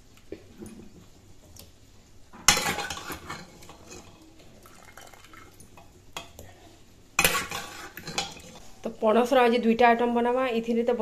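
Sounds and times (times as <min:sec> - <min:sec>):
metal spoon clanking on pan: 0:02.4 - 0:04.3, 0:07.2 - 0:08.6
spoon scraping metal: 0:02.5 - 0:04.2, 0:07.2 - 0:08.6.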